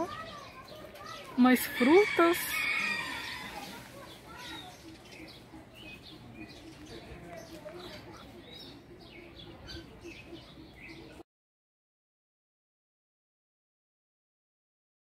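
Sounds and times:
birds chirping: 0:00.0 - 0:11.2.

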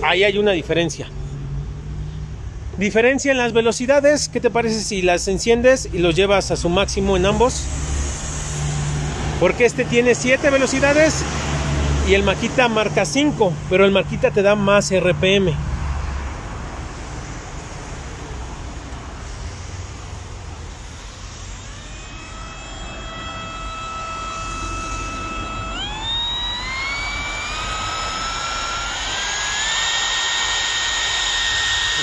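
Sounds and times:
router motor whining: 0:20.7 - 0:32.0.

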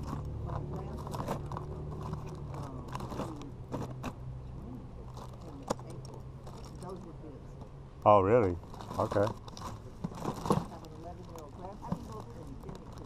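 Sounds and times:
plastic bag crinkling: 0:08.6 - 0:13.0.

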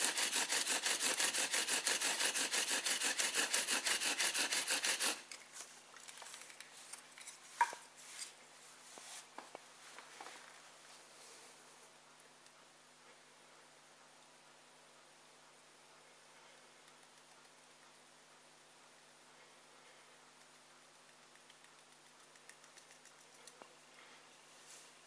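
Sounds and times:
bow drill rasping wood on wood: 0:00.0 - 0:05.3.

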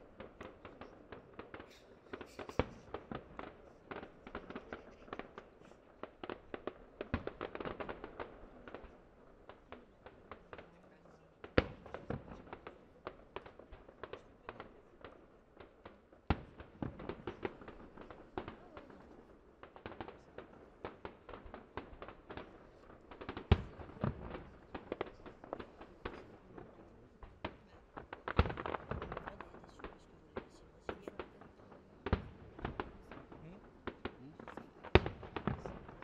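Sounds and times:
distant firework shells bursting: 0:19.9 - 0:30.5, 0:32.0 - 0:36.0.

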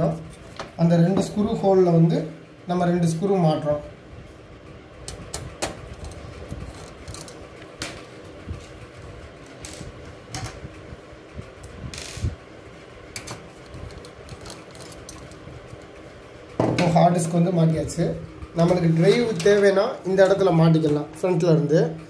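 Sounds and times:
screwdriver clicking and scraping metal: 0:06.0 - 0:07.4, 0:13.2 - 0:15.4.

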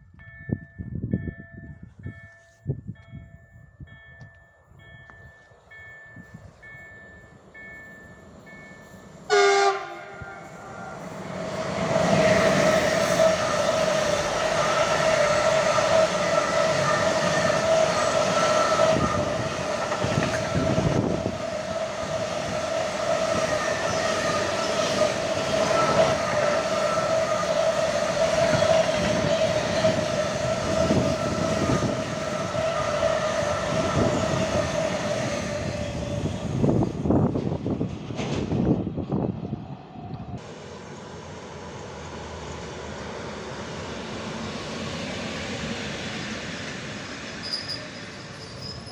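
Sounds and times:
steady ringing tone: 0:00.2 - 0:09.3
train wheels rumbling on rail: 0:05.0 - 0:48.9
train horn blast: 0:09.3 - 0:11.1.

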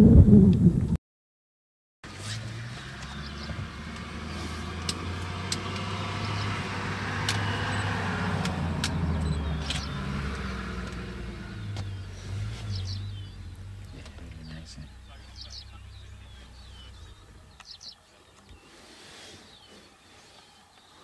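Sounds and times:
vehicle engine idling: 0:02.1 - 0:20.4
birds chirping: 0:02.3 - 0:21.0
sharp clicks: 0:07.2 - 0:11.1.

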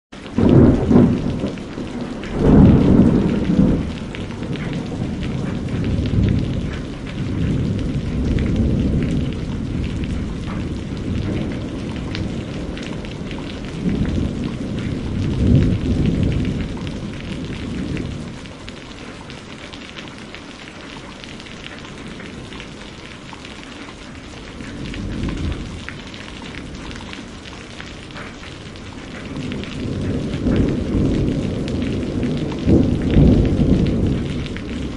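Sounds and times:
steady rain: 0:00.1 - 0:34.9
rolling thunder: 0:00.2 - 0:19.3, 0:24.2 - 0:34.9.

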